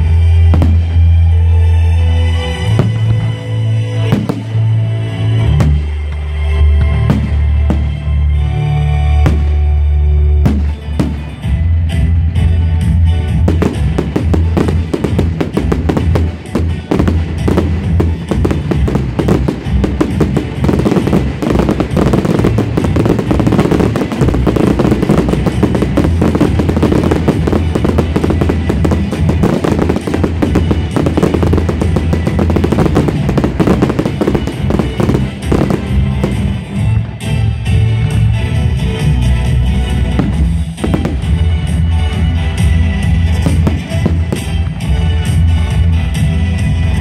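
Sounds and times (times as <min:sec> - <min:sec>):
fireworks bursting and crackling: 0:00.3 - 0:01.5, 0:02.5 - 0:08.3, 0:09.2 - 0:09.8, 0:10.5 - 0:12.1, 0:13.2 - 0:37.6, 0:39.3 - 0:45.9
loud music with heavy bass: 0:10.5 - 0:47.0.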